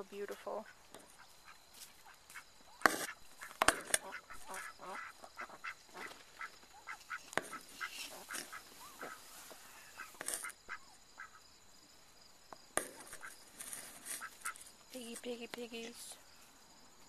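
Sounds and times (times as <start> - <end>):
short animal calls: 1.4 - 11.4.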